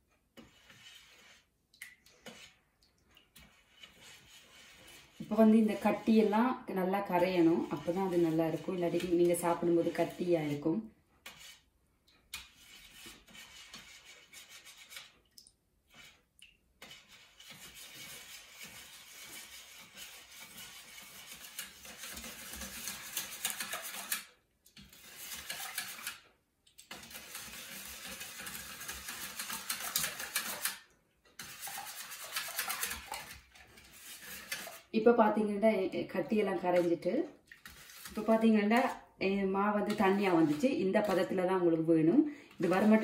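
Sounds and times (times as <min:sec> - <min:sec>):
whisk beating in a metal bowl: 0:02.2 - 0:02.6, 0:03.2 - 0:10.7, 0:16.8 - 0:26.3, 0:26.9 - 0:30.8, 0:31.4 - 0:34.9, 0:36.1 - 0:43.0.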